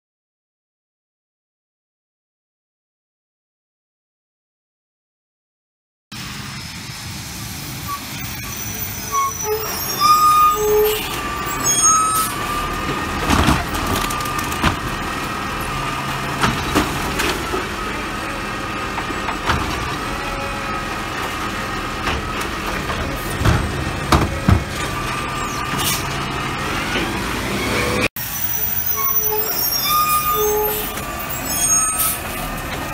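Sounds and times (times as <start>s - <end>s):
garbage truck diesel engine: 6.1s - 32.9s
hydraulic whine: 6.2s - 32.9s
carts knocking against hopper: 12.8s - 15.1s, 16.1s - 17.8s, 21.3s - 25.2s.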